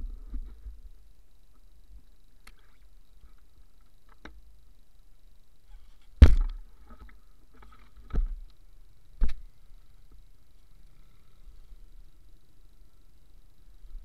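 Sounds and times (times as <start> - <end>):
low steady background: 0.0 - 14.0
sharp thumps: 6.2 - 6.6.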